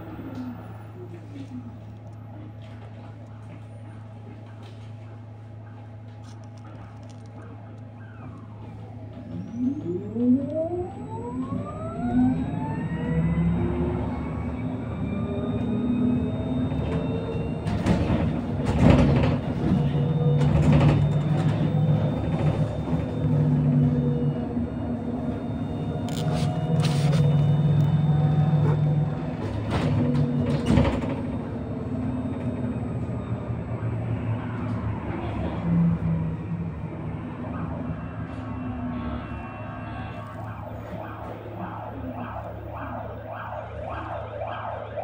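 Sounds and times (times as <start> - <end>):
electric bus motor whining: 0.0 - 45.0
road noise: 6.1 - 45.0
low drone: 20.4 - 45.0.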